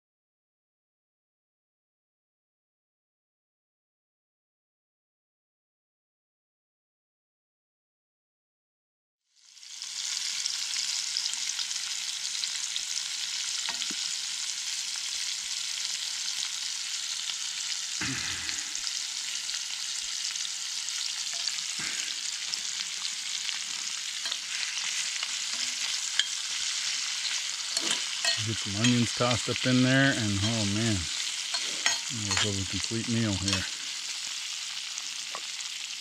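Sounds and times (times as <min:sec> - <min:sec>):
vegetables sizzling in a skillet: 0:09.3 - 0:36.0.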